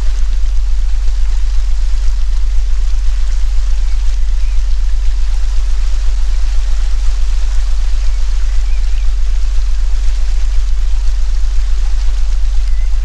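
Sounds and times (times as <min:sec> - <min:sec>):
low synthetic drone: 0:00.0 - 0:13.0
watery hiss: 0:00.0 - 0:13.0.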